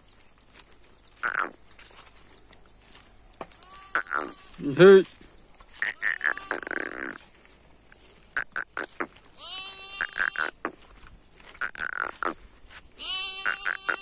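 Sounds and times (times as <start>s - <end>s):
dry twigs crackling underfoot: 0.0s - 14.0s
animal bleating: 3.5s - 5.1s, 5.7s - 7.3s, 8.3s - 10.8s, 11.6s - 12.4s, 13.0s - 14.0s.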